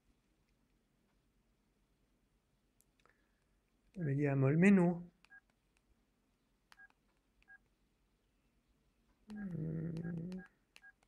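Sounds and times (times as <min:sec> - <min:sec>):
phone keypad beeps: 0:06.8 - 0:07.6, 0:09.3 - 0:11.0.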